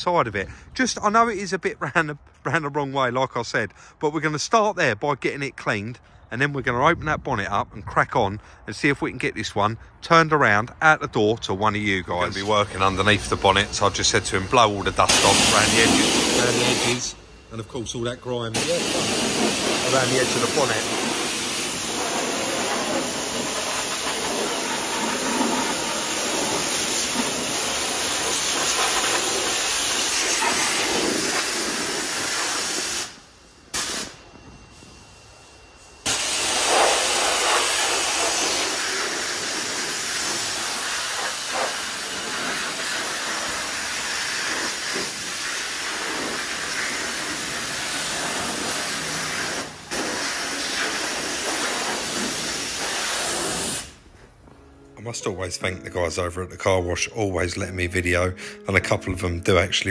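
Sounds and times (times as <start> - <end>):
pressure washer spraying water: 12.2 - 17.3, 18.5 - 34.2, 36.0 - 54.0.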